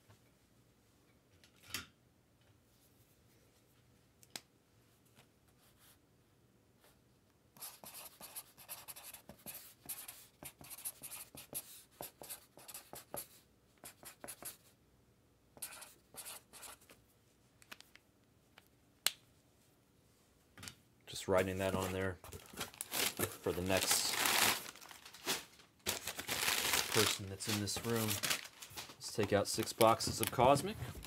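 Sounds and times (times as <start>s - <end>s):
pen writing on paper: 7.6s - 14.6s, 15.6s - 16.8s.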